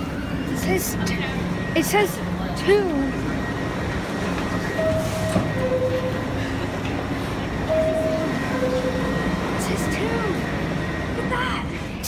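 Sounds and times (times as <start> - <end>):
train running: 0.0 - 12.0
two-tone door chime: 3.5 - 6.6, 7.6 - 10.5.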